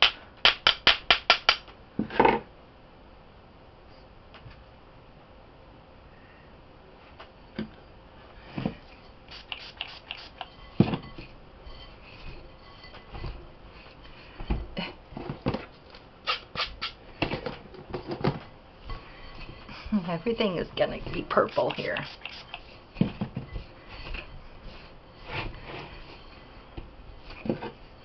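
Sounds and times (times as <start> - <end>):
hands scratching powder in bowl: 9.3 - 13.2, 18.9 - 23.0.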